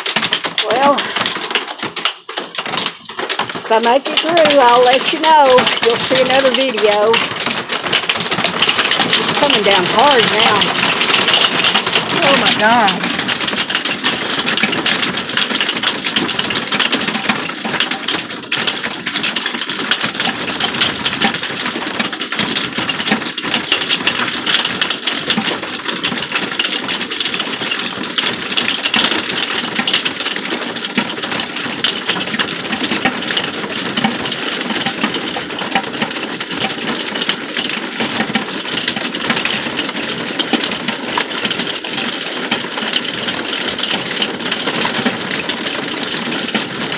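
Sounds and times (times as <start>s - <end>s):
rain and hail pelting a vehicle roof: 0.0s - 46.9s.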